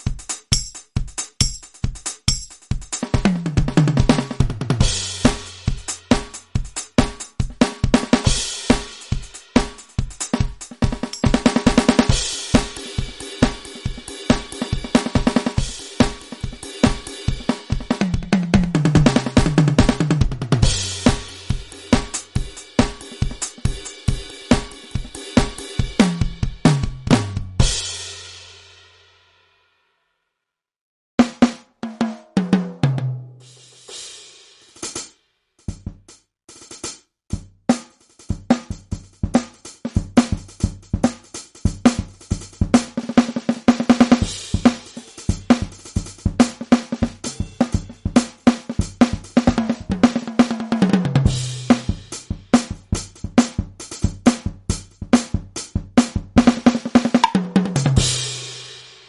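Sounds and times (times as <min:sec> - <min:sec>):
drum fill: 0:00.0 - 0:28.4, 0:31.2 - 0:33.4, 0:35.7 - 0:36.1, 0:37.3 - 0:58.7
kick and snare groove: 0:00.0 - 0:28.5, 0:31.2 - 0:34.1, 0:34.7 - 0:58.8
cymbals: 0:04.8 - 0:18.3, 0:44.2 - 0:46.1, 0:47.0 - 0:49.9.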